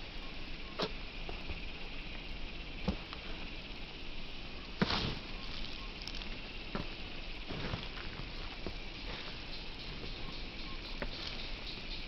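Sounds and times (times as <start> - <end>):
steady outdoor hiss: 0.0 - 12.0
footsteps on wooden stumps: 4.8 - 10.1.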